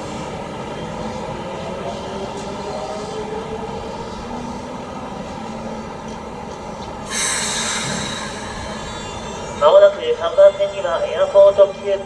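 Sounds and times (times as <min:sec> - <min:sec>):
wheels rumbling on rails: 0:00.0 - 0:12.0
electric train motor whine: 0:07.1 - 0:10.0.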